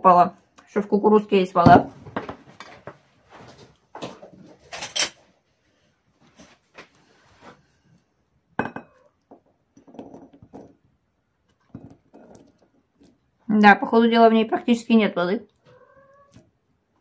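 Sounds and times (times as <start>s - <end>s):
spoon knocking glass bowl: 8.6s - 9.0s.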